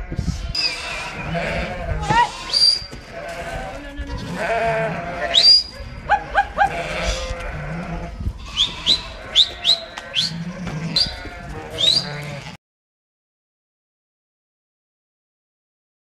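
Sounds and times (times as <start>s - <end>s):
sheep and lambs bleating: 0.0s - 12.6s.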